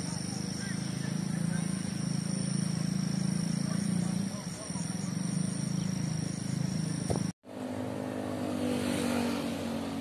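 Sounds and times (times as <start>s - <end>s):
cars and motorcycles passing: 0.0s - 10.0s.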